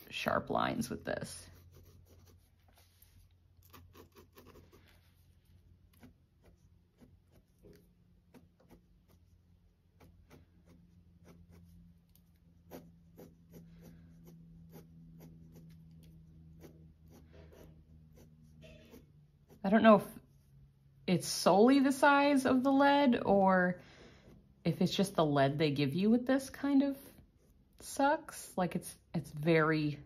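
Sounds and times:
pencil scratching on paper: 1.2 - 20.7.

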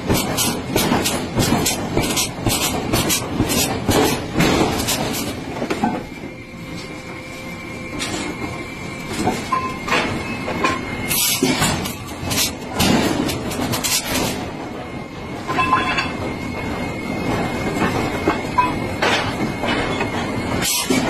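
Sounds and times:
steel clanking and scraping: 9.1 - 14.5, 15.4 - 16.4, 17.6 - 21.0.

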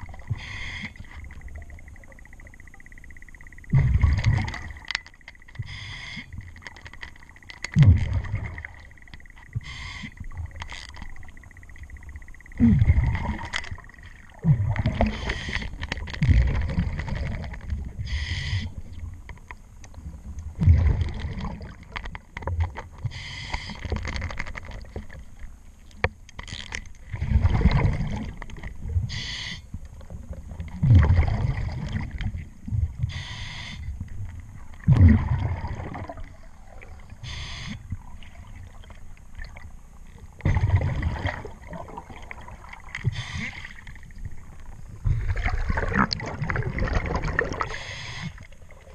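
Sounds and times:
gurgling exhaled bubbles: 3.7 - 4.8, 7.7 - 9.0, 12.6 - 18.2, 20.5 - 22.0, 27.0 - 29.1, 30.2 - 33.0, 34.8 - 39.6, 40.3 - 48.9.

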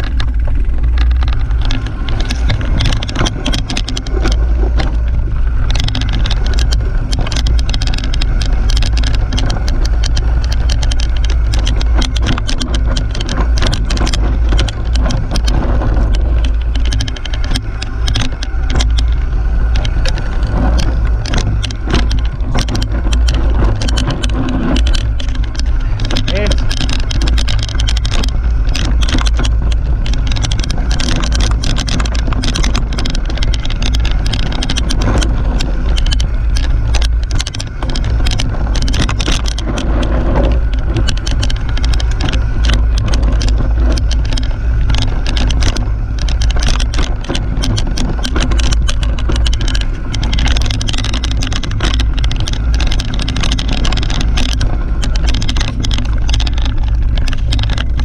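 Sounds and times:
bike rattling and clacking: 0.0 - 58.0
bike rolling over dirt trail: 0.0 - 58.0.

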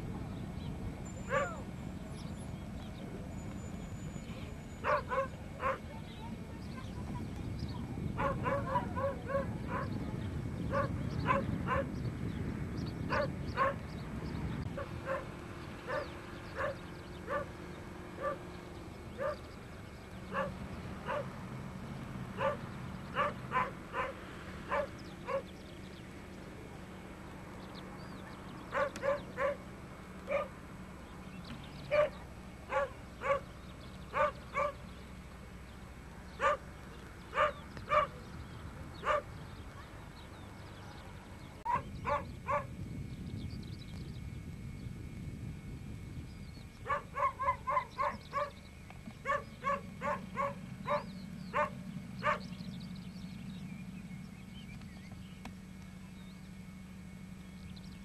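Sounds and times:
dog barking: 1.3 - 1.6, 4.8 - 6.0, 8.2 - 10.0, 10.7 - 11.9, 13.1 - 13.8, 14.8 - 15.3, 15.9 - 17.5, 18.2 - 18.4, 19.2 - 19.4, 20.3 - 21.3, 22.4 - 22.6, 23.2 - 25.5, 28.7 - 29.6, 30.3 - 30.6, 31.9 - 33.5, 34.1 - 34.8, 36.4 - 36.6, 37.4 - 38.2, 39.0 - 39.3, 41.7 - 42.7, 46.9 - 48.6, 49.2 - 52.5.

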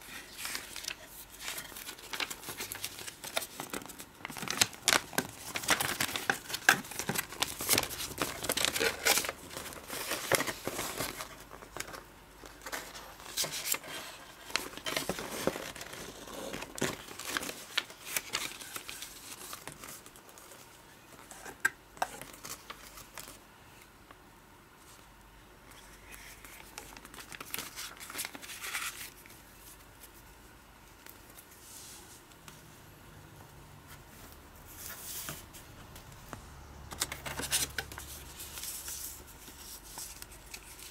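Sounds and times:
paper pages flipping and rustling: 0.0 - 20.6, 25.7 - 30.3, 34.2 - 40.9.

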